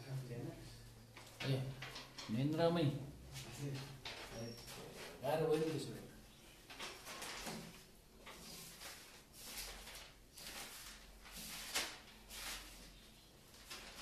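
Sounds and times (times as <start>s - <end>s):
person moving with scraping and rustling: 3.3s - 5.9s, 6.5s - 14.0s.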